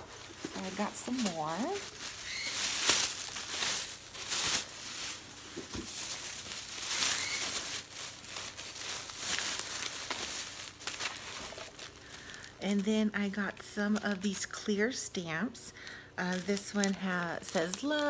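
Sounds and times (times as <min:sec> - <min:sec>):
paper and packaging crinkling: 0:00.0 - 0:14.7, 0:15.8 - 0:18.0.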